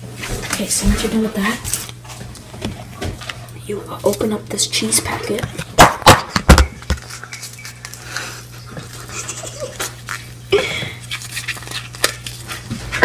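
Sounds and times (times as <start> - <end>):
low steady hum: 0.0 - 13.0
packet crinkling: 6.8 - 10.4, 11.0 - 12.9.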